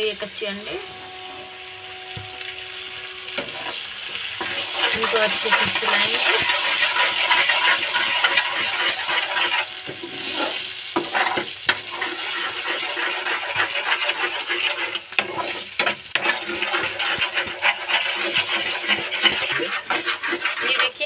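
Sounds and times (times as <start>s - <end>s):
eggs sizzling in hot oil: 0.0s - 21.0s
spatula scraping metal pan: 3.2s - 21.0s.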